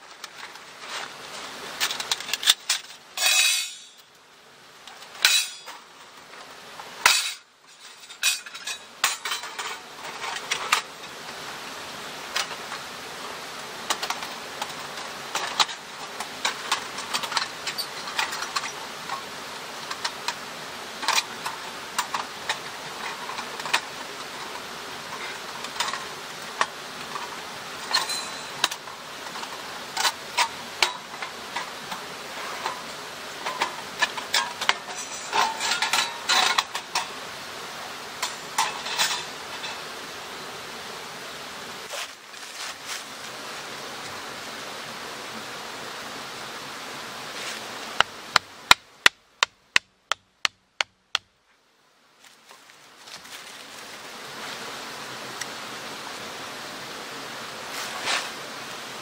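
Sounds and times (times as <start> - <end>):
metal panels clinking and scraping: 0.0 - 4.2, 4.9 - 6.4, 7.0 - 11.2, 13.9 - 20.4, 21.0 - 37.2, 38.1 - 39.9.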